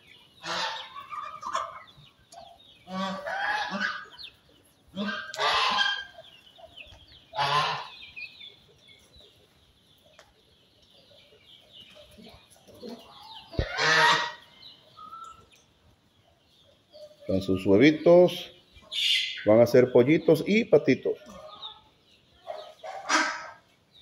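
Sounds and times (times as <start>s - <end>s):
poultry harsh calls: 0.0s - 8.4s, 11.9s - 15.4s, 17.0s - 23.8s.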